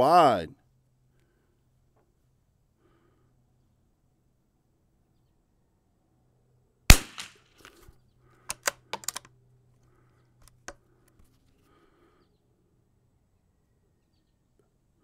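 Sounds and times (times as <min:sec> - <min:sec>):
rifle shot crack: 0:06.9 - 0:07.5
rifle bolt clicks: 0:08.5 - 0:09.3.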